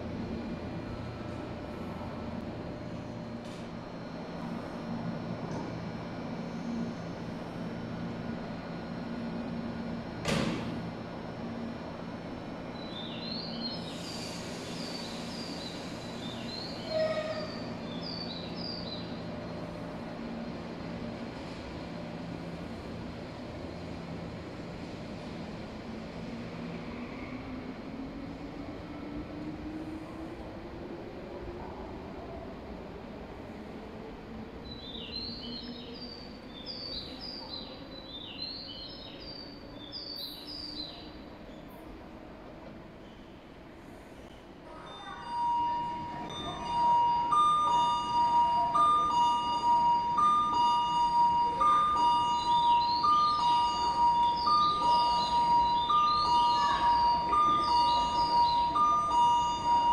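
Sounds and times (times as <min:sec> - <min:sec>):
electric train humming: 0:00.0 - 0:37.9, 0:44.6 - 0:59.9
brief tone: 0:44.7 - 0:59.9.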